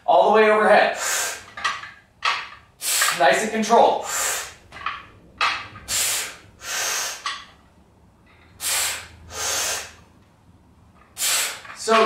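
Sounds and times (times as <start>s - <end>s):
man breathing hard: 4.0s - 4.6s, 5.8s - 7.5s, 8.5s - 10.2s, 11.2s - 11.8s.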